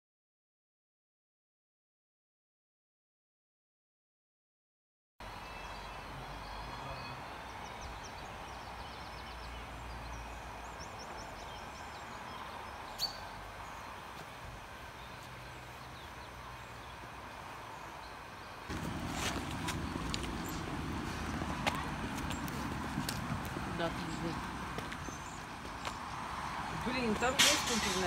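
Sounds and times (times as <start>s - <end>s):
bird chirping: 5.2s - 14.2s, 17.7s - 28.0s.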